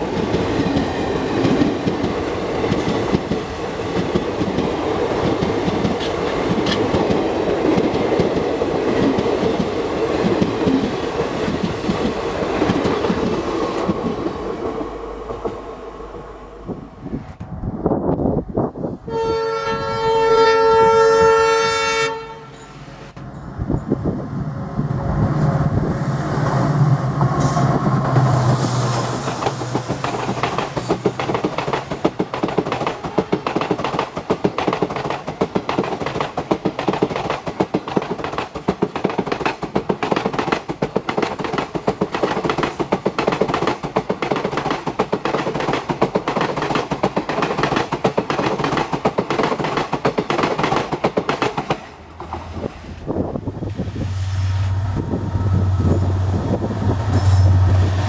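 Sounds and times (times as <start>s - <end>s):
train wheels clicking over rail joints: 0.0s - 15.6s, 26.4s - 52.7s
locomotive horn: 19.1s - 22.9s
locomotive engine passing: 22.5s - 32.5s, 51.7s - 58.0s.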